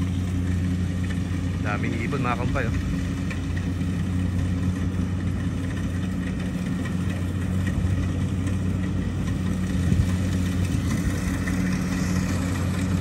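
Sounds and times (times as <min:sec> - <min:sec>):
combine harvester engine humming: 0:00.0 - 0:13.0.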